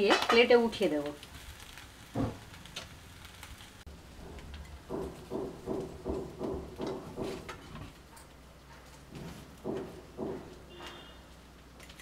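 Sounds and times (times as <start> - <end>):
hammering knocks: 4.2 - 7.7, 9.1 - 11.1.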